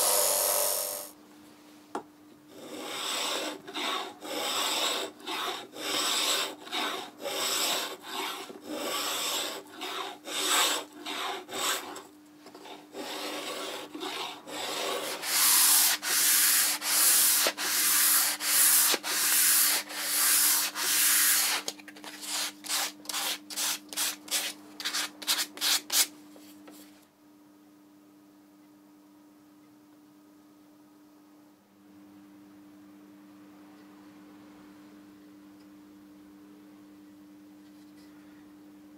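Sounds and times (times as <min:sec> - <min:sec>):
faint steady hum: 0:00.0 - 0:38.9
sanding block scraping wood: 0:02.6 - 0:12.0, 0:12.6 - 0:26.1.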